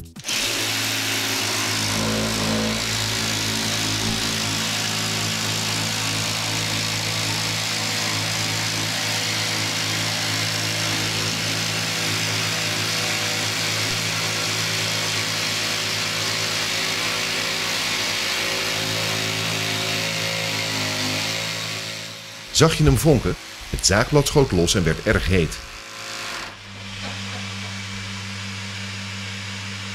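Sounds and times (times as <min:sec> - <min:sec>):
jigsaw motor hum: 0:00.2 - 0:22.5, 0:24.8 - 0:29.9
saw blade cutting hiss: 0:00.3 - 0:06.3.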